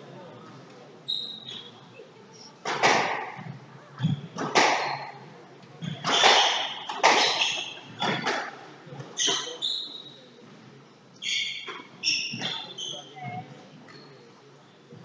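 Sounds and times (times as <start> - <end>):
squash ball cracking off rackets: 5.9 - 8.6.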